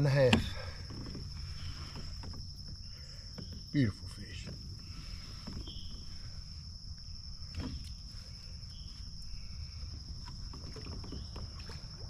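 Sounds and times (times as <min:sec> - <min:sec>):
insects droning: 0:00.0 - 0:12.0
light knocks and clicks: 0:00.2 - 0:06.1.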